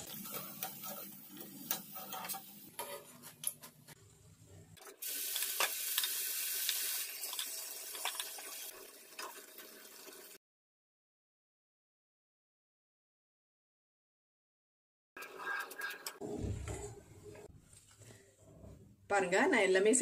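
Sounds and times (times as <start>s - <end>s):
batter sizzling in hot oil: 0.0s - 2.9s, 5.0s - 10.4s.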